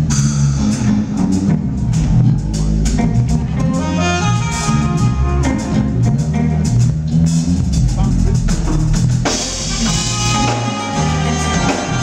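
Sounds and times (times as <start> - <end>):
smooth jazz band playing: 0.0 - 12.0
saxophone long note: 3.6 - 6.0, 9.7 - 12.0.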